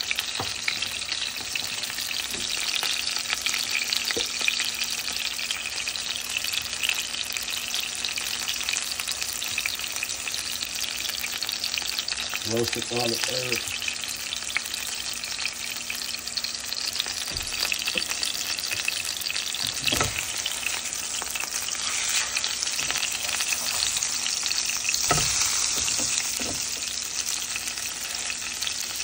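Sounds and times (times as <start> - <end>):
fish sizzling in frying pan: 0.0 - 29.0
spatula knocking on pan: 25.0 - 26.7.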